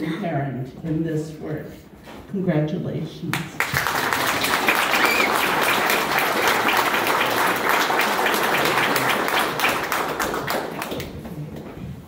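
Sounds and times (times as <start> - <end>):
audience applauding: 3.6 - 11.4.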